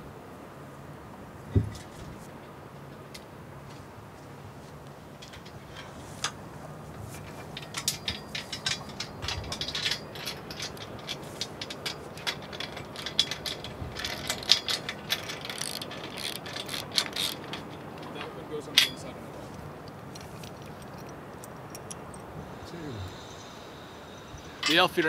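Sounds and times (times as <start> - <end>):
socket ratchet clicking: 7.7 - 18.1.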